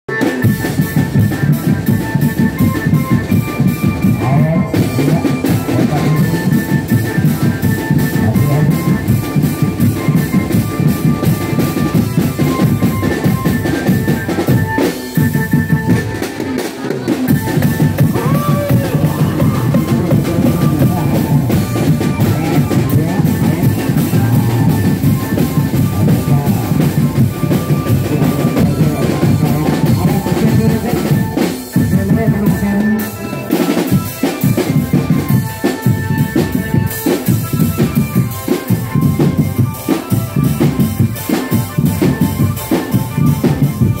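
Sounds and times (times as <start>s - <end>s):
drum-led music: 0.1s - 44.0s
bass drum beat: 0.5s - 16.2s, 17.3s - 32.9s.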